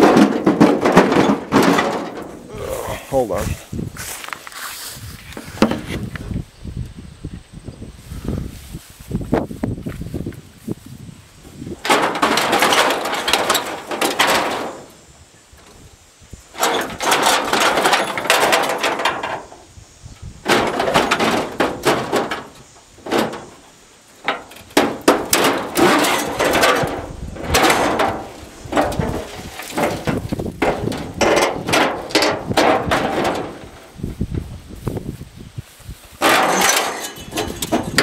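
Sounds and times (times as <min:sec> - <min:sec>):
bent sheet metal clanking: 0:00.0 - 0:03.6, 0:11.7 - 0:15.1, 0:16.5 - 0:19.6, 0:20.4 - 0:34.4, 0:36.2 - 0:38.0.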